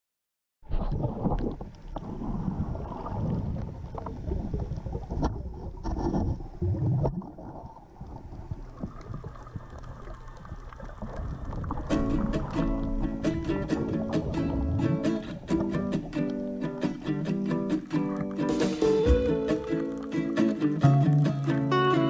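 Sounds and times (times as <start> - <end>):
underwater low rumble: 0.6 - 16.6
small clicks underwater: 8.0 - 13.0.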